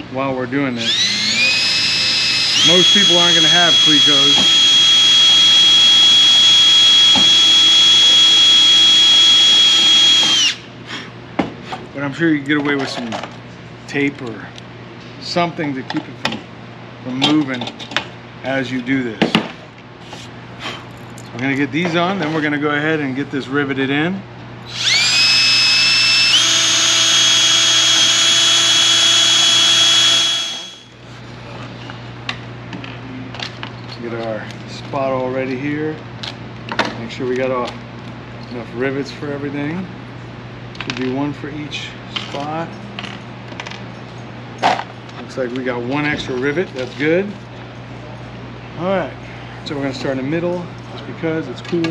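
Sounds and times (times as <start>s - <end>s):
cordless drill whining: 0.8s - 10.6s, 24.7s - 30.9s.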